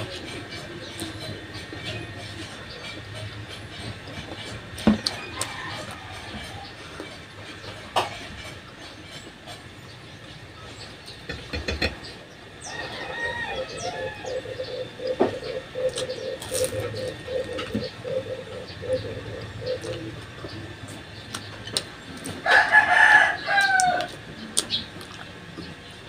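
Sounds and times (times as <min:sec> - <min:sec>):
steady pulsing: 0:00.0 - 0:22.2
rooster crowing: 0:05.0 - 0:06.8, 0:12.6 - 0:15.6, 0:22.4 - 0:24.2.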